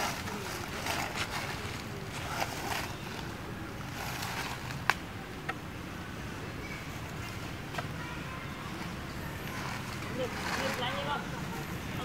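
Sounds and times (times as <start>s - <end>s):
dry leaves rustling and crunching: 0.0s - 5.0s, 9.3s - 12.0s.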